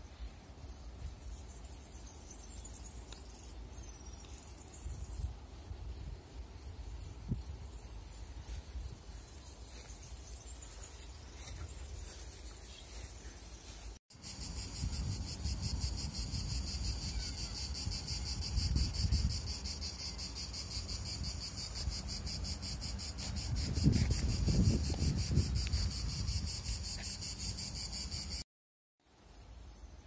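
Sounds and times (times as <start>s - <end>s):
crickets chirping: 0.0s - 28.4s, 29.0s - 30.0s.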